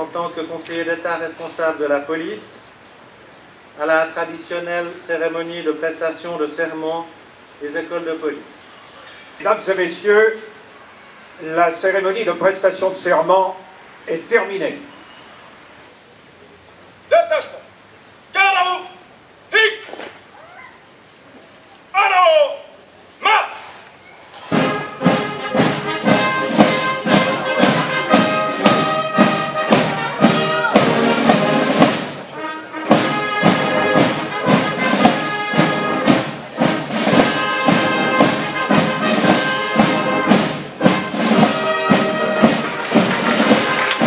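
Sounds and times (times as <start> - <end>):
brass band playing a march: 24.4 - 44.0
drum beat: 24.5 - 44.0.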